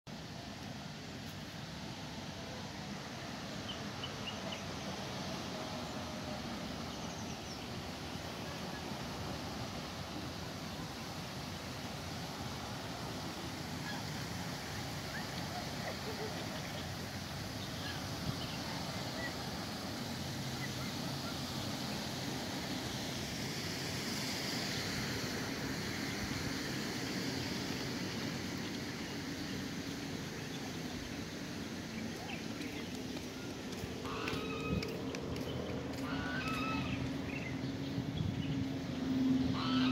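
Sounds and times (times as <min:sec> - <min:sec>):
steady outdoor rushing noise: 0:00.1 - 0:39.9
hiss: 0:07.6 - 0:30.1.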